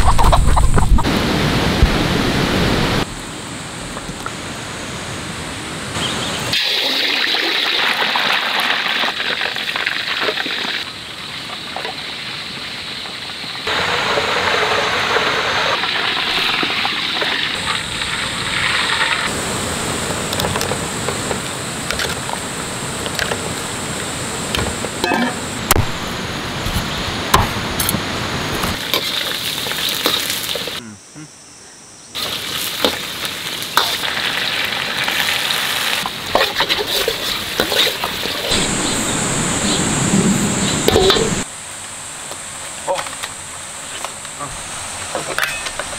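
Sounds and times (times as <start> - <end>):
hot oil sizzling in a wok: 6.5 - 20.1, 28.8 - 30.8, 32.2 - 39.2.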